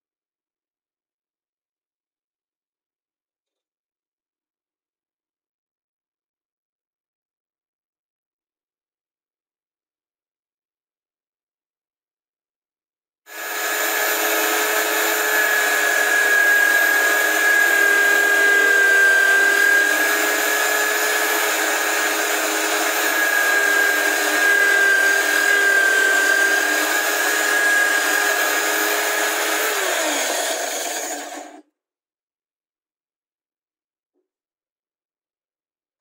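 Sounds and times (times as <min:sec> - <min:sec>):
drill press whining: 0:13.3 - 0:31.6.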